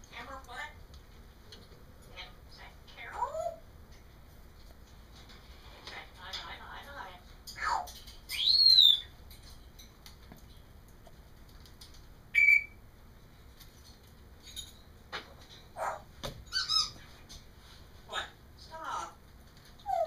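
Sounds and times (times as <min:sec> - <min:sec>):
parrot chirps and squeaky calls: 0:07.6 - 0:09.2, 0:12.3 - 0:12.8, 0:15.8 - 0:17.0, 0:19.8 - 0:20.0
parrot whistling: 0:08.3 - 0:09.1, 0:12.3 - 0:12.8.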